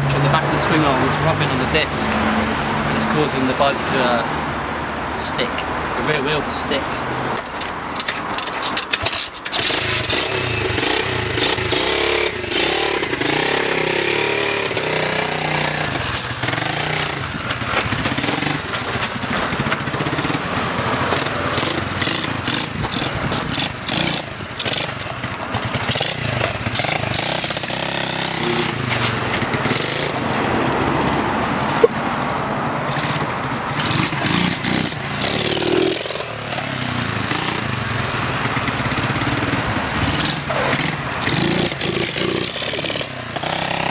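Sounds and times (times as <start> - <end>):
motorbike engine revving: 9.0 - 43.9.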